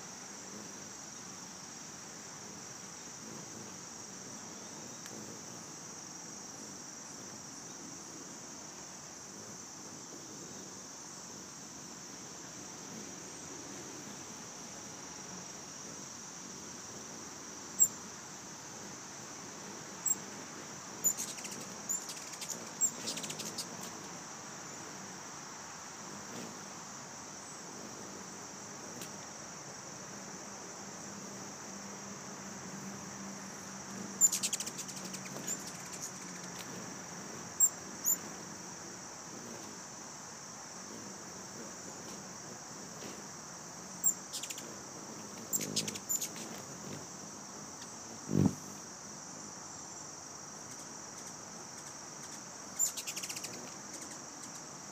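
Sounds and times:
high-pitched insect trill: 0.0 - 54.9
hummingbirds chittering: 18.8 - 25.1, 32.8 - 38.6, 43.8 - 48.6, 50.6 - 54.9.

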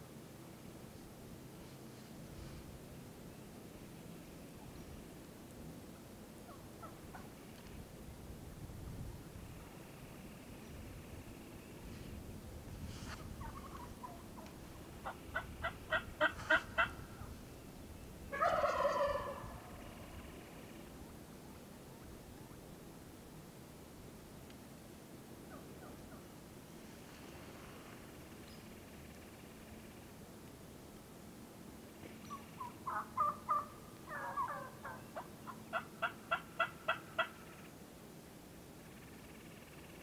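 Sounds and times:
turkey yelps: 6.5 - 7.3, 13.4 - 17.3, 18.3 - 20.2, 32.3 - 37.7
turkey gobbling: 6.5 - 7.4, 13.4 - 17.3, 18.3 - 20.5, 32.3 - 37.7.

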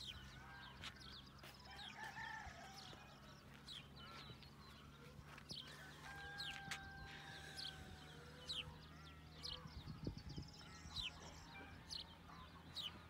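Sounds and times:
small birds chirping: 0.0 - 13.0
distant rooster crowing: 0.3 - 3.6, 5.6 - 9.7.

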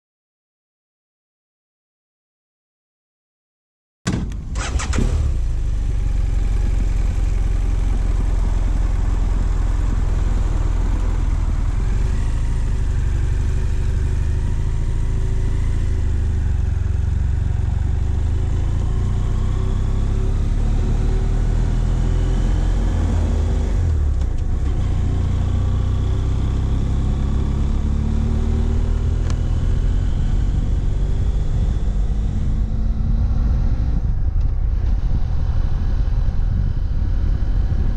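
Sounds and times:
motorcycle engine accelerating: 4.3 - 37.9.

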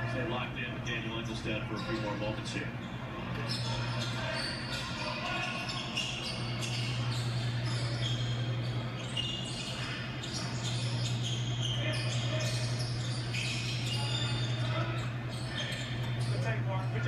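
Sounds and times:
arena crowd noise: 0.0 - 17.0
steady low hum: 0.0 - 17.0
sneakers squeaking on court: 1.7 - 17.0.

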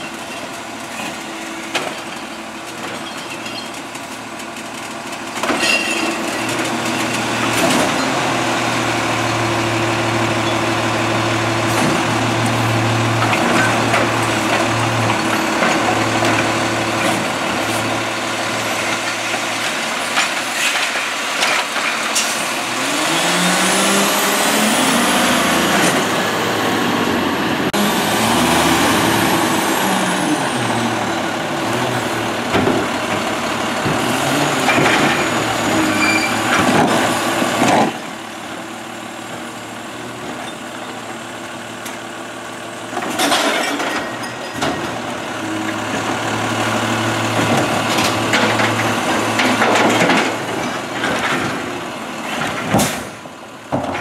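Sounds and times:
truck engine and hydraulics drone: 21.6 - 53.8
engine revving: 22.6 - 31.0.

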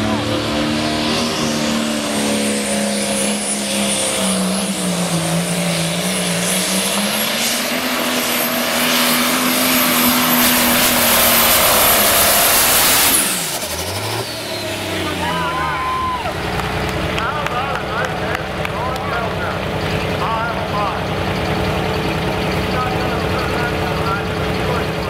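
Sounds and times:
high whine: 0.0 - 16.3
diesel tractor engine at full throttle: 0.0 - 25.0.

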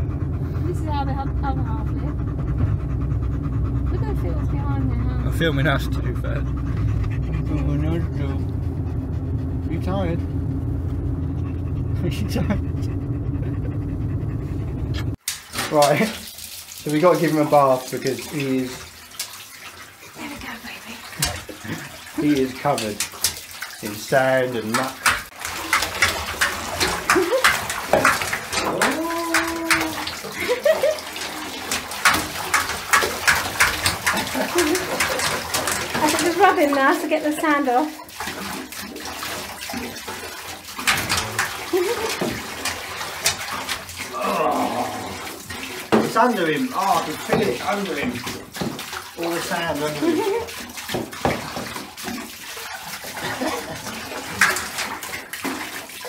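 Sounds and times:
water splashing over dog: 3.9 - 8.5, 15.1 - 56.0
dog whining: 28.6 - 30.2.

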